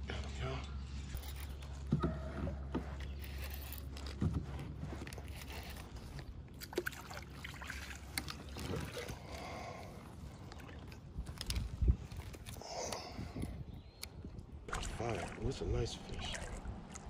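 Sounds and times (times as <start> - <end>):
water splashing around kayak: 6.0 - 11.5, 14.7 - 17.0.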